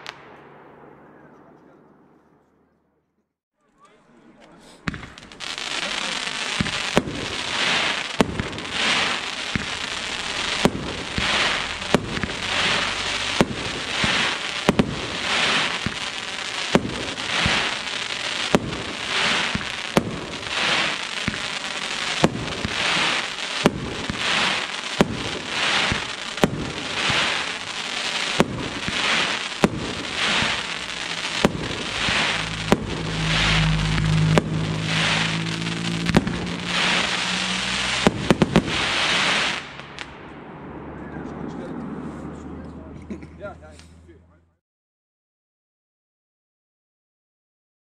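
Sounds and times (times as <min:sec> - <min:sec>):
firework crackling stars: 0:00.0 - 0:01.2, 0:03.8 - 0:42.5
firework launch thumps: 0:04.8 - 0:05.3, 0:08.2 - 0:15.0.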